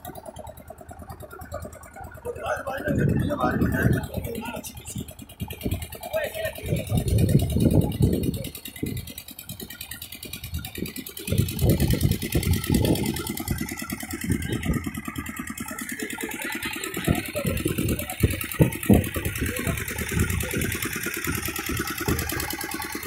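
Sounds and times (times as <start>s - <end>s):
low rumbling: 0.0s - 22.5s
boat engine running: 0.0s - 23.0s.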